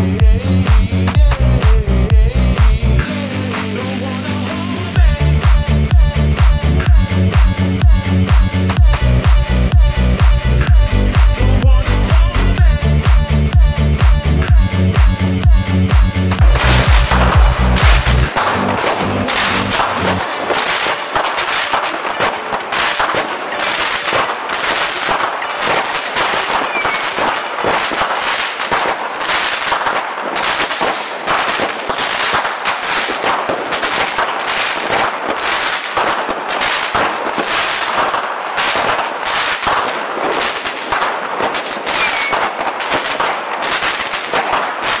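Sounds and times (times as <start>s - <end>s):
fireworks bangs and crackles: 0.0s - 2.8s, 14.5s - 45.0s.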